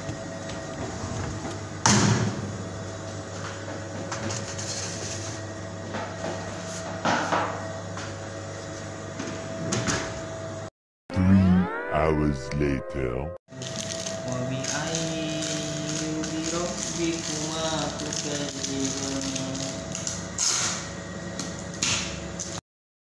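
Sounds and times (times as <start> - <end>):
steady machine hum: 0.0 - 10.7, 12.0 - 22.6.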